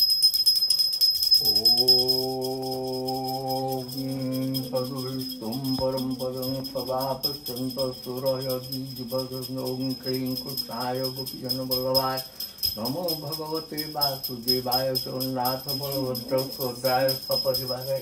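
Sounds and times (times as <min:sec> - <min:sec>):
jingling bells: 0:00.0 - 0:18.0
person singing a chant: 0:01.4 - 0:18.0.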